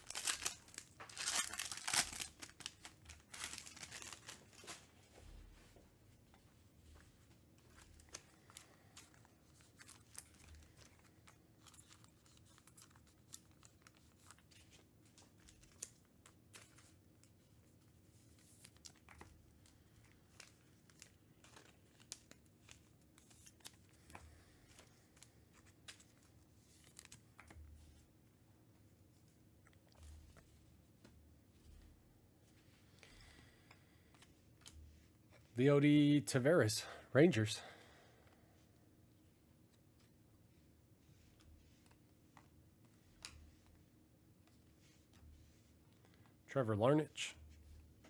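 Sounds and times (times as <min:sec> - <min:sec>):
wrapper tearing and crinkling: 0:00.0 - 0:04.7.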